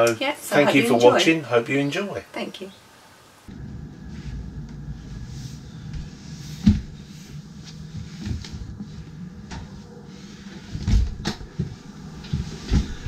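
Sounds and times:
faint low hum: 3.5 - 13.0
footsteps on floor: 5.9 - 13.0.

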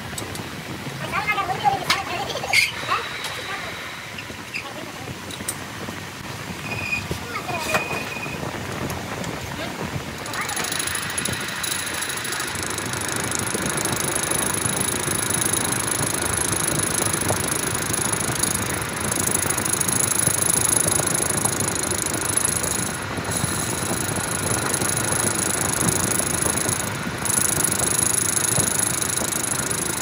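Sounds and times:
thin high whine: 2.1 - 5.2, 10.0 - 30.0
metal lathe machining: 10.2 - 30.0.

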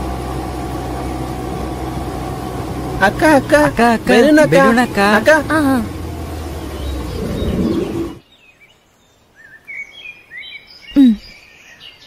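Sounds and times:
scooter engine running: 0.0 - 8.2
birds chirping: 0.0 - 12.0.

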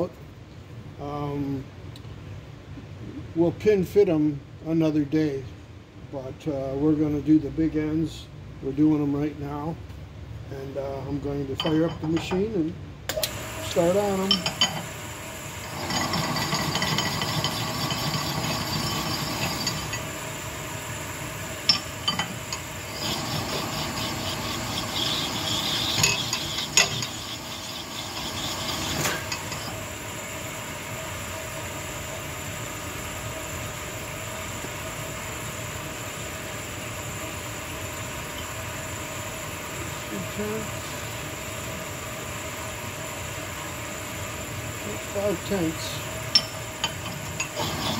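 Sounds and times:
honing stone rasping: 15.7 - 20.0, 21.7 - 29.8, 46.4 - 47.9.

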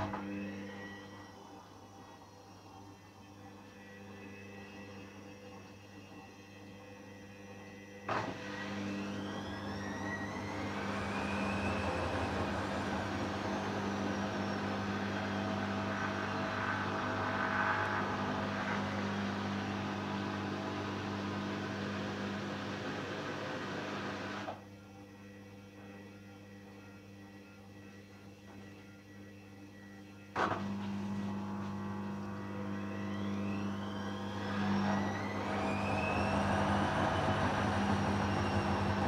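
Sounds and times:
washing machine drum whining: 8.1 - 24.5, 30.4 - 39.0.

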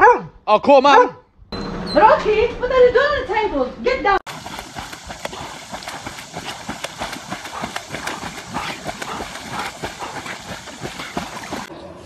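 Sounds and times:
dogs splashing while swimming: 4.3 - 11.7.

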